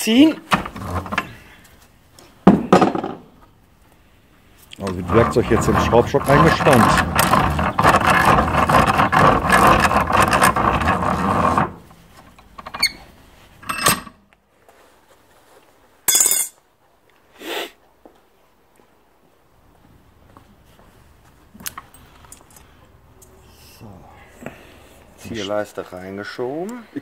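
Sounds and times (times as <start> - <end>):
vise screw grating scrape: 0.5 - 1.4, 4.8 - 14.1
sharp metallic clink: 16.1 - 16.6.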